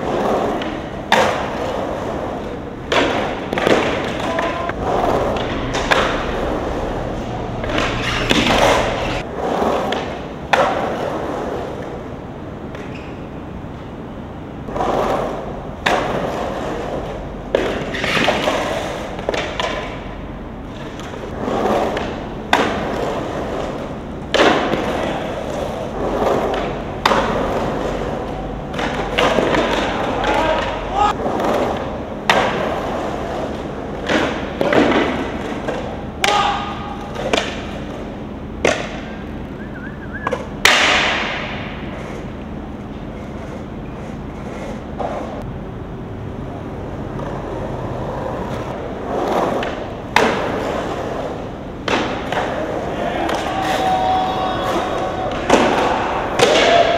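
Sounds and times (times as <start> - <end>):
skateboard wheels rolling on concrete: 0.0 - 56.9.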